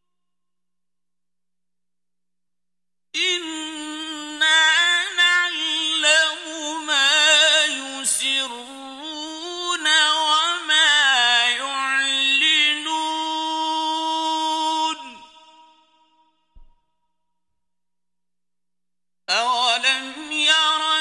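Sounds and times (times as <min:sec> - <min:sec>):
man chanting recitation: 0:03.2 - 0:15.6, 0:19.3 - 0:21.0.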